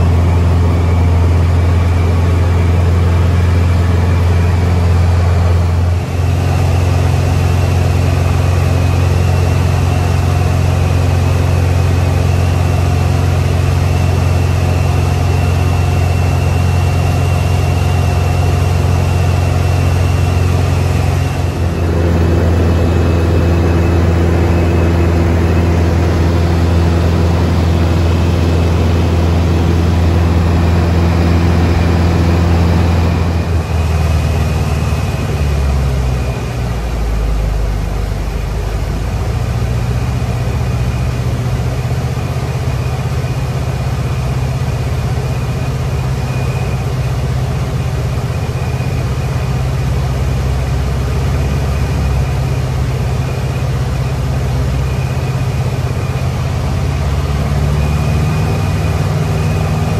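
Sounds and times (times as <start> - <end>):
light aircraft engine droning: 0.0 - 59.9.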